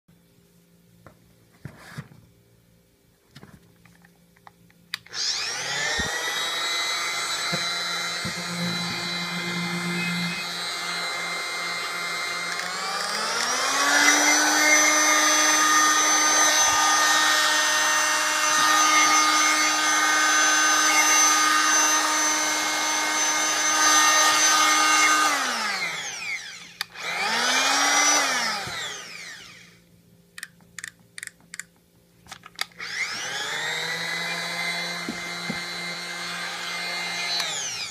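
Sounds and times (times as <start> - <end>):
oscillating multi-tool whining: 5.0 - 29.8, 32.6 - 37.9.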